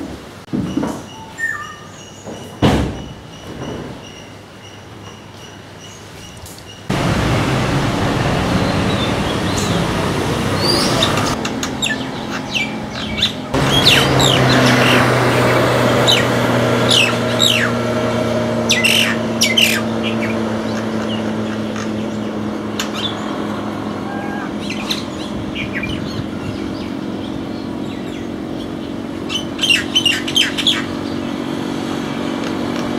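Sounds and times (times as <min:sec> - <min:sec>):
whistled bird notes: 0:01.0 - 0:02.3, 0:10.6 - 0:15.1
vehicle engine hum: 0:06.9 - 0:32.9
sharp falling bird calls: 0:07.8 - 0:17.9.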